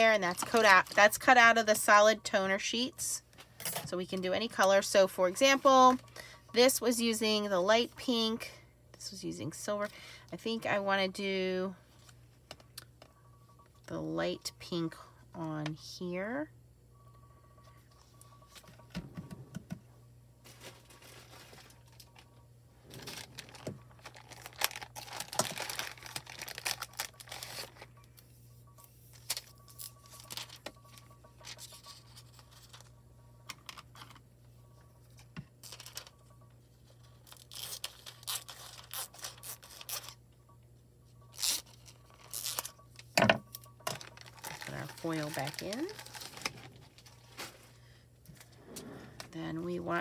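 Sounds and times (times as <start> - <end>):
foil crinkling and tearing: 20.5 - 22.2, 22.9 - 27.9, 37.2 - 40.2, 41.3 - 42.7, 43.9 - 47.8.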